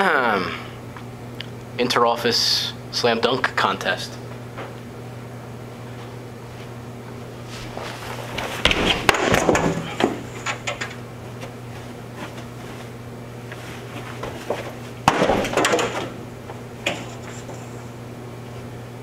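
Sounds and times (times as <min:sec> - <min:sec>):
low electrical hum: 0:00.0 - 0:19.0
running footsteps: 0:07.4 - 0:10.6, 0:11.4 - 0:15.4
knocks and thumps: 0:08.4 - 0:10.9, 0:14.2 - 0:17.3.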